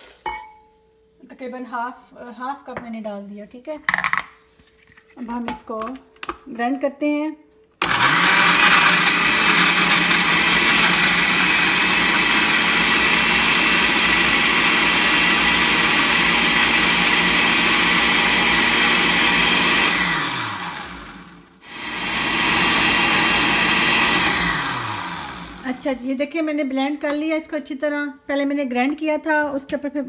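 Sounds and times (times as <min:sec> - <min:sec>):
blender motor running: 0:07.8 - 0:25.8.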